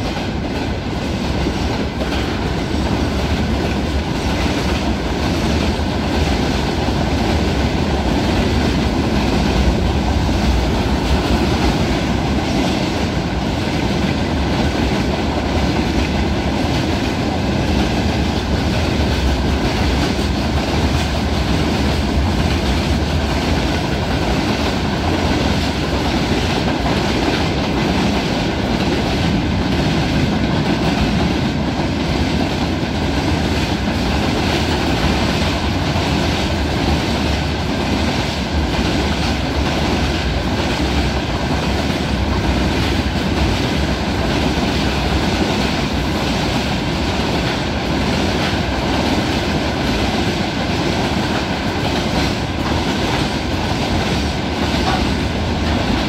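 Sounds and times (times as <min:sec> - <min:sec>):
train wheels rolling on rails: 0:00.0 - 0:56.0.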